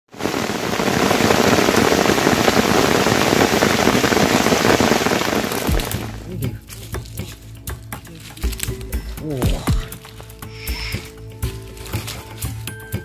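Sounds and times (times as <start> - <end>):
rushing water with splashes: 0.1 - 6.3.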